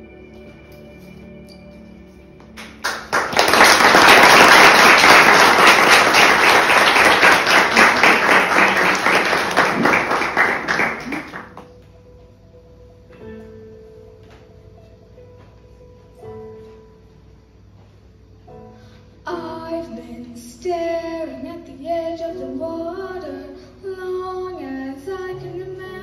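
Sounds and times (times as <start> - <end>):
audience applauding: 2.6 - 11.7.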